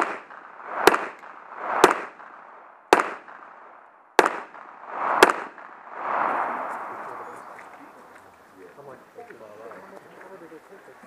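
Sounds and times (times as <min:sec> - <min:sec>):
pistol shots with echo: 0:00.0 - 0:05.8.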